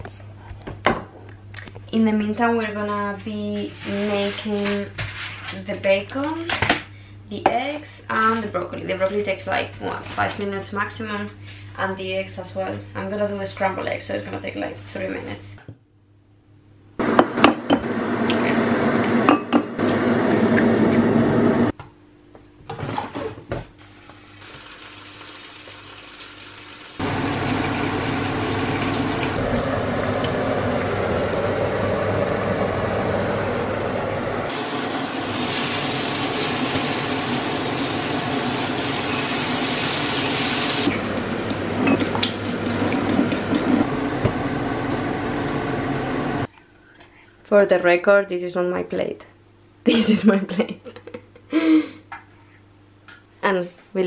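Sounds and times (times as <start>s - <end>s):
food sizzling in frying pan: 24.2s - 33.8s, 34.4s - 41.7s.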